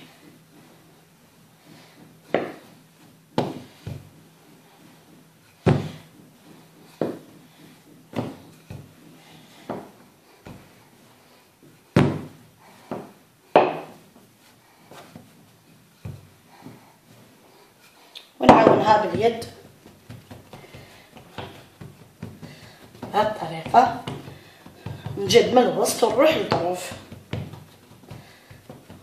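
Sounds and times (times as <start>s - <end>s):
rolling pin knocking on countertop: 2.3s - 2.7s, 12.0s - 12.3s, 12.9s - 14.0s, 18.5s - 29.0s.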